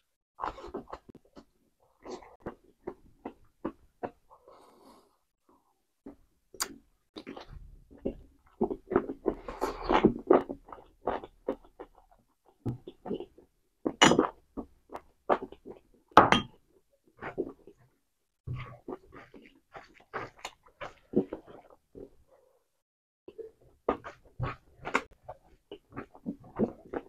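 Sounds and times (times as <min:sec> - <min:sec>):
wet chewing and lip smacks: 0:18.6 - 0:22.1.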